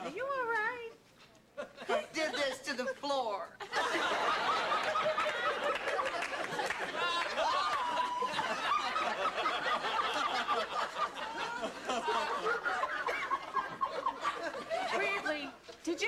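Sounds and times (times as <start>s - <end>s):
studio audience laughing: 3.6s - 15.6s
man giggling and whooping: 7.0s - 14.2s.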